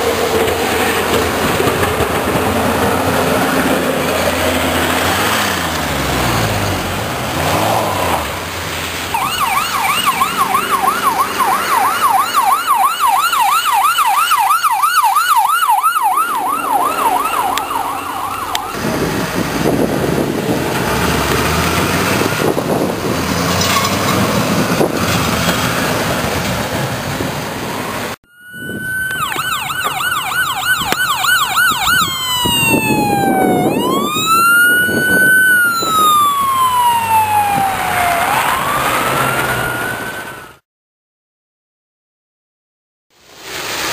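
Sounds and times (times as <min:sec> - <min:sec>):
road and engine noise: 0:00.0 - 0:40.6, 0:43.1 - 0:43.9
ambulance siren wailing: 0:00.8 - 0:05.4, 0:09.1 - 0:19.9, 0:28.2 - 0:40.6
siren warbling yelp: 0:09.2 - 0:19.1, 0:28.2 - 0:40.6.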